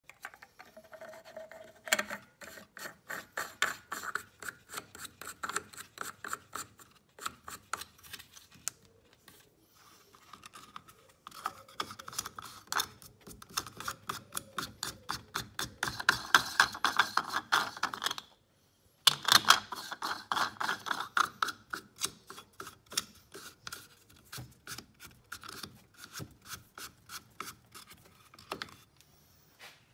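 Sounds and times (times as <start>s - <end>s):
plastic cap rubbing in filler neck: 10.2s - 18.2s.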